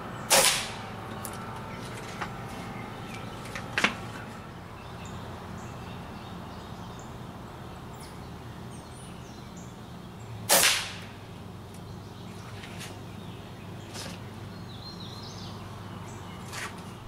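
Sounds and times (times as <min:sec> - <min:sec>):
outdoor background noise: 0:00.0 - 0:17.0
air rifle shot: 0:00.3 - 0:00.8, 0:10.5 - 0:11.1.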